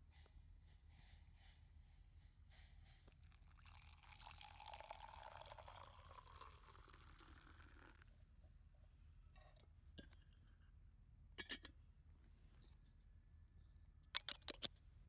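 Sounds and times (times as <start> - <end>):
water pouring into metal cup: 3.1 - 8.0.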